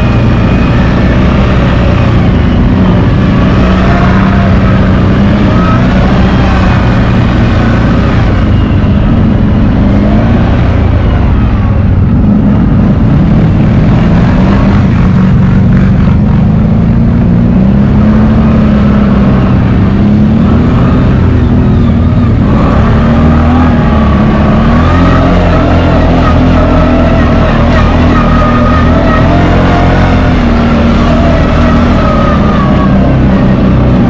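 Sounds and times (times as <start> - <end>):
atv engine running: 0.0 - 34.0.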